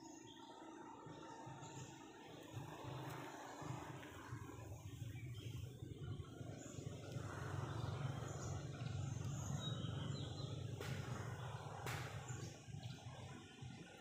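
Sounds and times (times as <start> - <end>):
low roadside rumble: 1.5 - 14.0.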